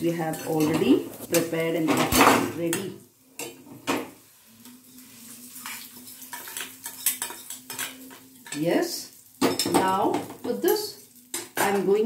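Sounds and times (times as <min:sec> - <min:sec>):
hot oil sizzling faintly: 0:00.0 - 0:12.0
metal spoon scraping steel pans: 0:00.1 - 0:04.0, 0:04.6 - 0:08.7.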